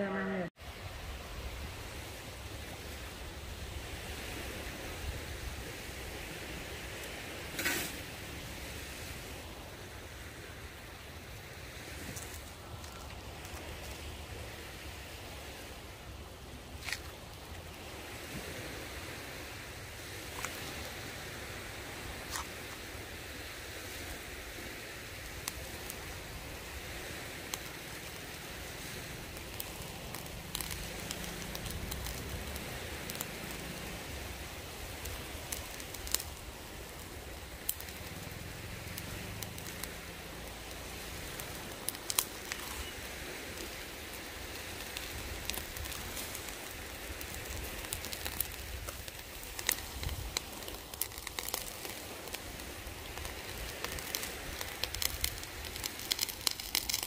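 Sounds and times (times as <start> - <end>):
fire crackling and popping: 0.5 - 57.0
steak sizzling on grill: 17.9 - 57.0.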